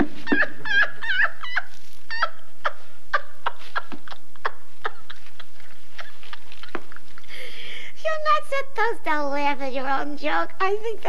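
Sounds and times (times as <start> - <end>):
woman laughing high-pitched: 0.0 - 7.4.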